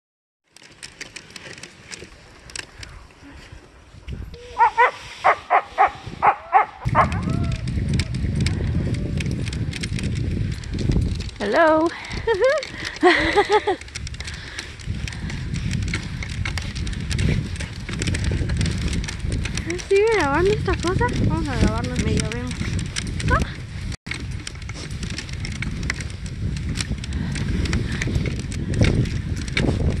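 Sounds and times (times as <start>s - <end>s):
sled clicking and creaking: 0.4s - 30.0s
sled runners hissing on snow: 4.4s - 6.4s
low rumble: 5.8s - 11.4s.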